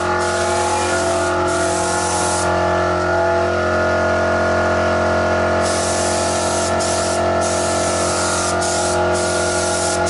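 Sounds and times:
spray paint hiss: 0.2s - 2.5s, 5.6s - 10.0s.

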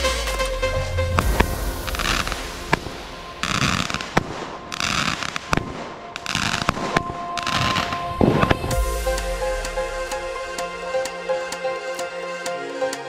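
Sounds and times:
fireworks bangs: 1.1s - 8.6s
fireworks hissing crackle: 1.2s - 8.6s.

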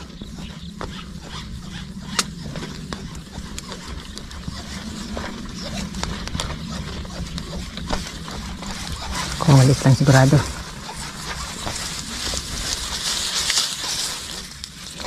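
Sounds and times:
steady low rumble: 0.0s - 15.0s
fishing line clicking and rubbing: 0.8s - 10.1s.

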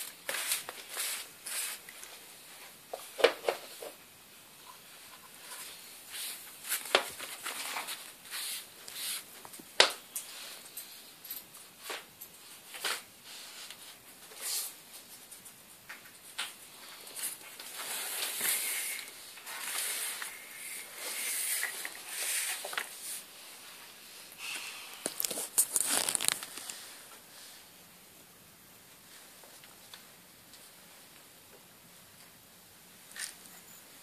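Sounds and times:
paper rustling and crinkling: 25.1s - 26.9s.

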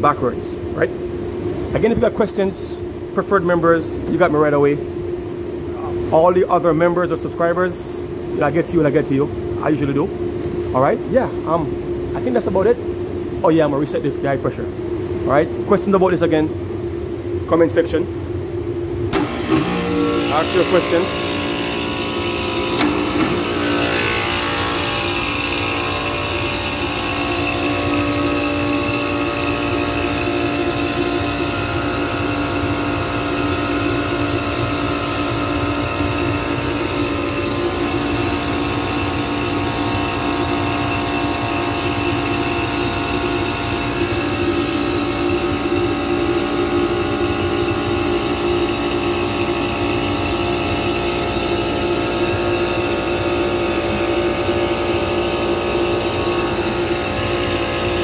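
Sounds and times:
compressor starting and running: 0.0s - 58.0s.

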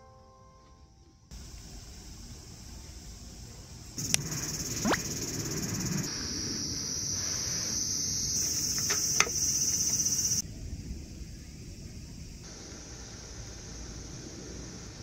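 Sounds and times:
high-pitched insect chorus: 1.3s - 15.0s
sharp clicks: 4.0s - 5.0s.

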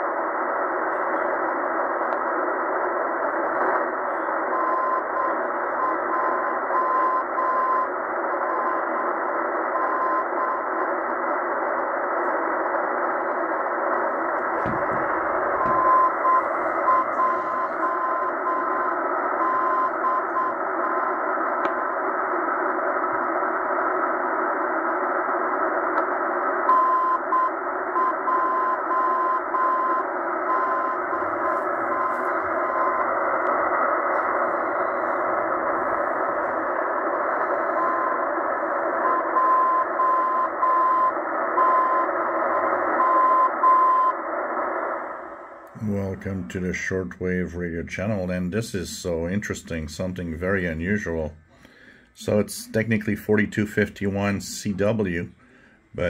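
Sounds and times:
radio static hiss: 0.0s - 56.0s
morse code beep tone: 4.5s - 7.9s, 14.6s - 21.1s, 26.7s - 33.0s, 39.0s - 42.0s, 43.0s - 44.1s.

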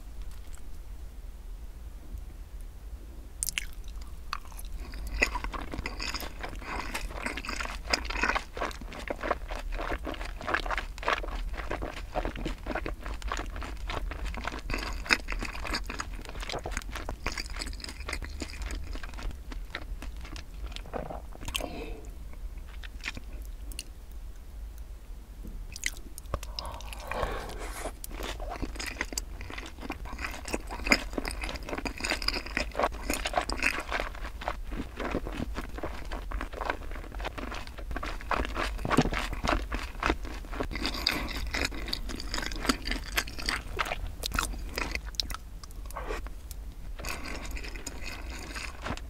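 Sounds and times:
wet crunchy chewing: 3.4s - 23.9s, 25.7s - 49.0s
lip smacks: 25.7s - 28.6s.

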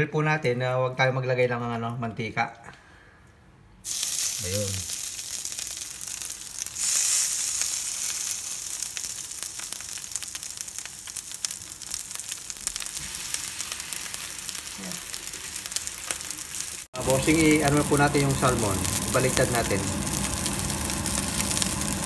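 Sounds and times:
fish sizzling on grill pan: 3.8s - 22.0s.

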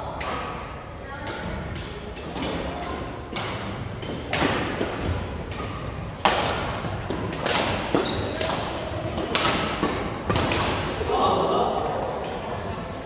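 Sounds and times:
rackets hitting shuttlecock: 1.2s - 11.0s.

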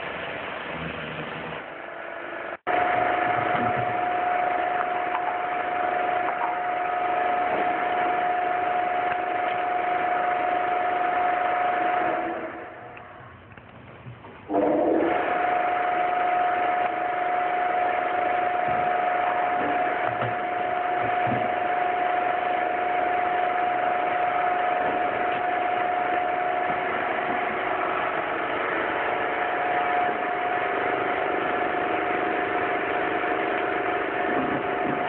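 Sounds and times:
pressure washer spraying: 14.5s - 34.9s.

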